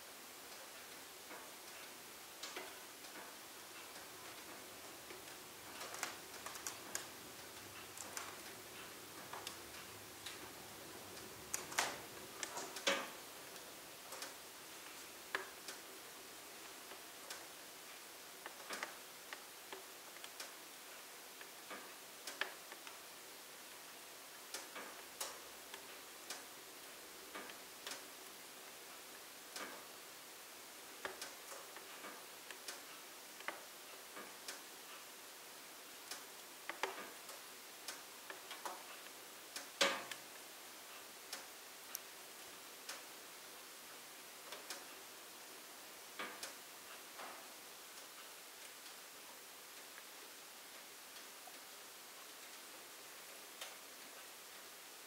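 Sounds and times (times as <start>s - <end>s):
faint fire hiss: 0.0s - 55.0s
wood fire crackling and popping: 1.3s - 15.9s, 30.9s - 34.6s.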